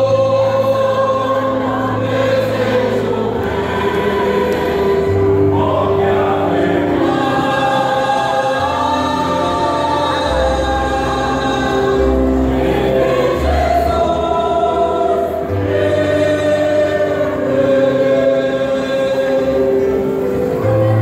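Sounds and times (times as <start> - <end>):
mixed choir singing in harmony: 0.0 - 21.0.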